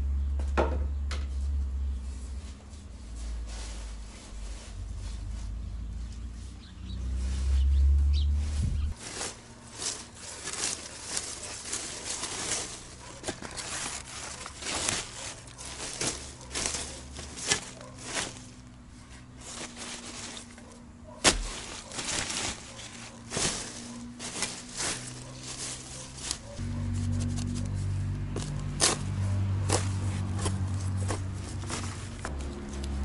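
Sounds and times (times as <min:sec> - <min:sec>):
spade scraping in soil: 0:08.6 - 0:33.0
spade striking ground: 0:21.2 - 0:25.1.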